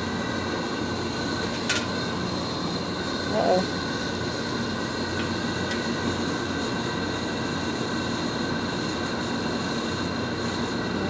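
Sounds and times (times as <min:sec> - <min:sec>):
gas burner roaring: 0:00.0 - 0:11.0.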